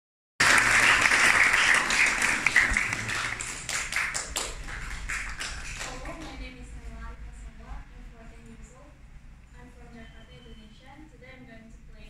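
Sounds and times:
audience applauding: 0.4 - 6.2.

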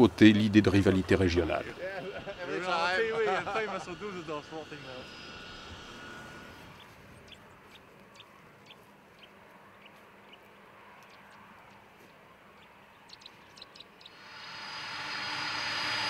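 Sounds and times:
faint outdoor background: 0.0 - 16.0
small bird chirping: 6.7 - 14.8.

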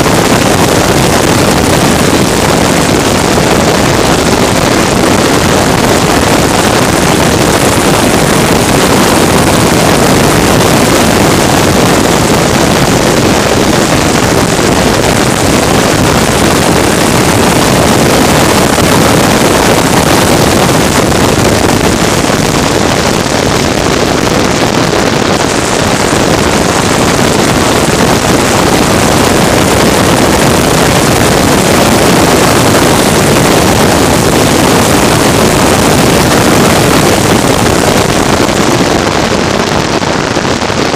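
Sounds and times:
wind on microphone: 0.0 - 40.9.

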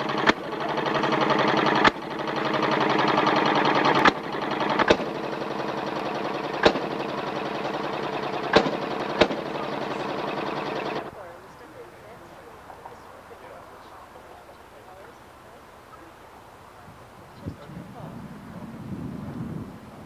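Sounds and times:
sharp clicks: 0.0 - 11.1
small engine running: 0.0 - 16.7.

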